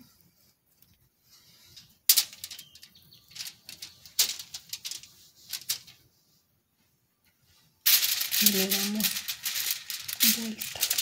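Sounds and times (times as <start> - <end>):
aluminium foil crinkling: 1.6 - 6.0, 7.8 - 11.0.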